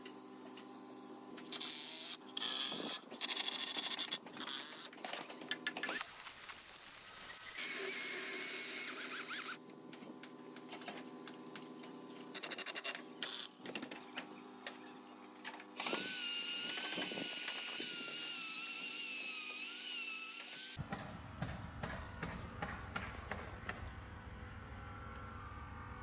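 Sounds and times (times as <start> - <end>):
chainsaw cutting wood: 1.4 - 9.6, 15.7 - 20.8
router high whine: 14.2 - 20.8.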